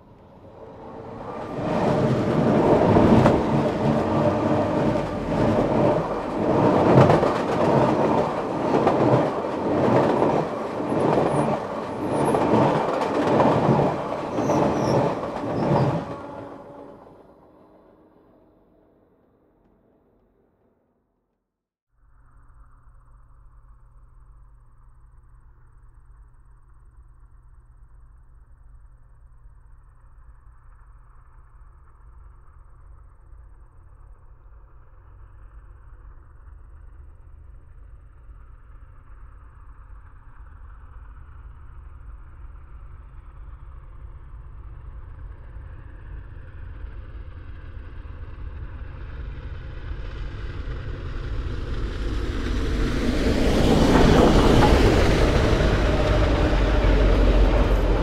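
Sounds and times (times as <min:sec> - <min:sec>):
crickets chirping: 0:00.0 - 0:16.8, 0:22.0 - 0:34.6
steam locomotive rumble: 0:00.0 - 0:18.1, 0:45.4 - 0:58.0.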